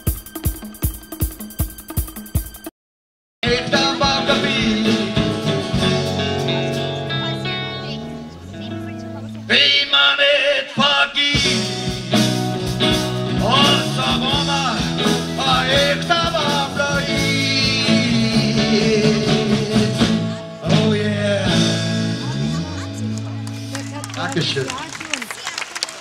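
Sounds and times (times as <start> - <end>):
live band playing: 0.0 - 2.7, 3.4 - 10.1, 11.2 - 25.9
man singing into microphone: 3.4 - 6.1, 9.5 - 11.9, 13.3 - 22.3.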